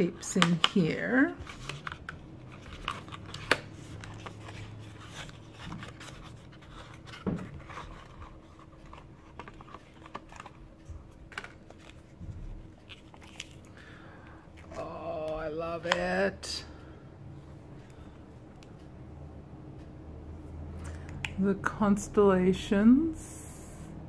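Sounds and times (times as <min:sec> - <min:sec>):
paper rustling: 0:01.4 - 0:13.8.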